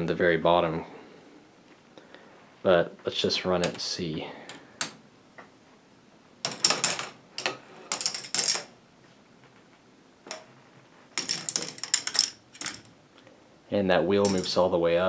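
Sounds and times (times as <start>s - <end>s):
plastic balls clattering on track: 6.5s - 8.8s, 11.2s - 12.9s.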